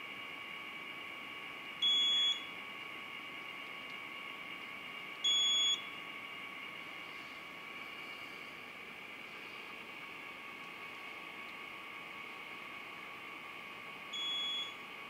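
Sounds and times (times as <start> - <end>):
high beeps: 5.3 - 5.9, 14.2 - 14.8.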